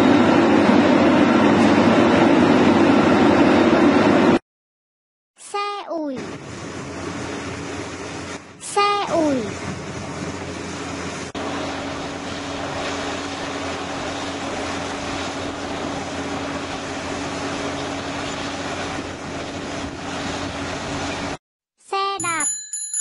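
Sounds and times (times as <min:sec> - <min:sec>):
bulldozer diesel engines under load: 0:06.2 - 0:21.4.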